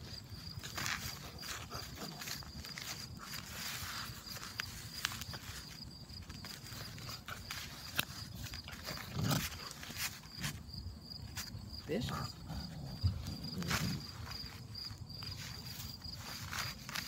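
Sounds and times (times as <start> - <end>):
insects chirping: 0.0 - 17.0
paws scuffing on fabric: 0.0 - 17.0
puppy growls: 8.7 - 9.8, 12.0 - 14.2.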